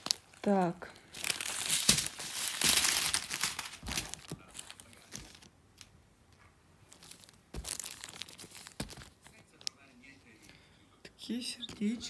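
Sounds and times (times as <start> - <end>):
plastic bags crinkling: 0.0 - 5.5, 6.9 - 9.6.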